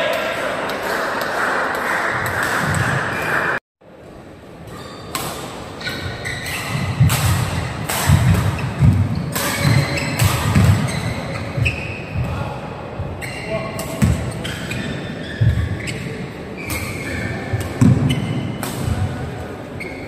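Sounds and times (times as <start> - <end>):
shoe squeaks on court floor: 4.7 - 5.2, 5.8 - 7.0, 8.5 - 12.2, 13.2 - 18.6, 19.8 - 20.0
rackets hitting shuttlecock: 5.1 - 11.8, 16.6 - 19.3.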